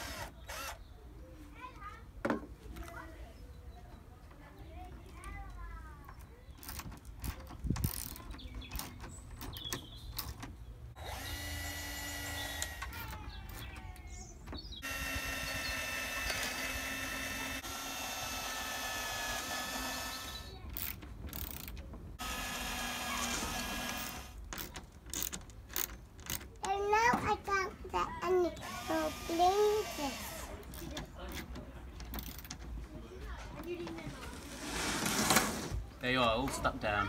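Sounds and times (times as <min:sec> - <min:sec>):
cordless drill driving screws: 0:00.0 - 0:00.8, 0:11.0 - 0:13.6, 0:14.8 - 0:25.9, 0:28.6 - 0:30.8
clicks and knocks of handling: 0:24.5 - 0:27.3, 0:30.7 - 0:34.1.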